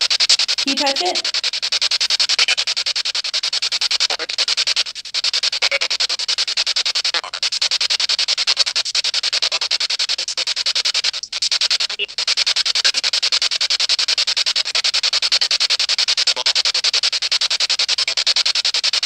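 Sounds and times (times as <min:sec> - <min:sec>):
pulsing radio static: 0:00.0 - 0:15.1.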